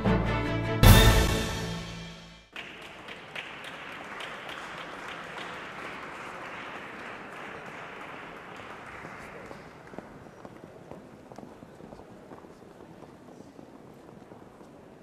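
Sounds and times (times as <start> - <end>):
intro music final hit: 0.6 - 2.4
audience applause: 2.5 - 10.9.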